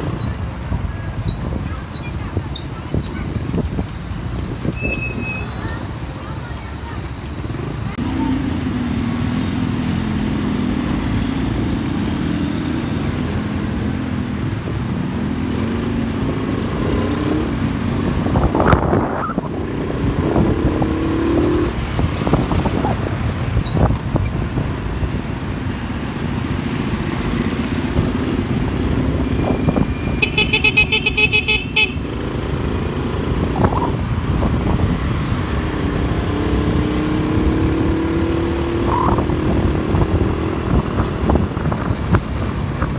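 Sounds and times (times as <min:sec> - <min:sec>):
other vehicles: 0:00.0 - 0:42.9
vehicle horn short toots: 0:30.1 - 0:32.0.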